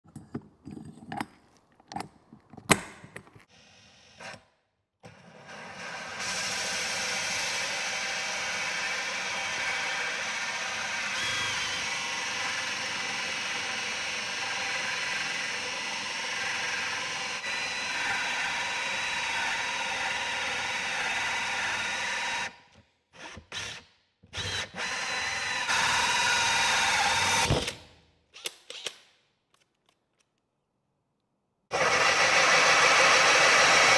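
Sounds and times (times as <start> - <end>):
drill cutting with hole saw: 5.4 - 22.6, 23.2 - 27.8, 31.7 - 33.9.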